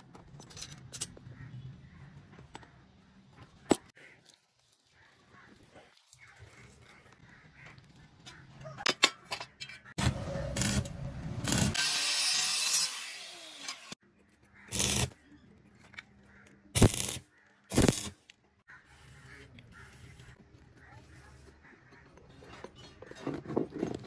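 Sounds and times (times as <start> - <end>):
angle grinder grinding steel: 10.0 - 14.0.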